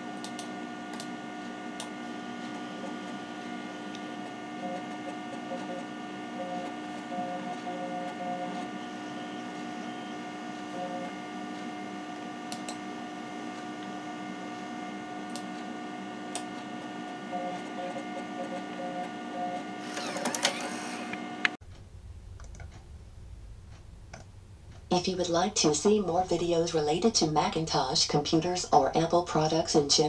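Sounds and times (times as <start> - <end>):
disk drive whirring: 0.0 - 23.0
computer fan hum: 0.0 - 30.0
disk drive clicks: 12.5 - 12.9, 15.2 - 15.7.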